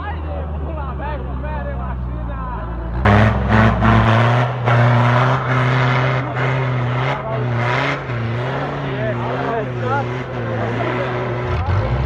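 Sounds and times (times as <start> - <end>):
tyres churning through snow and mud: 2.0 - 12.0
engine revving hard: 3.0 - 12.0.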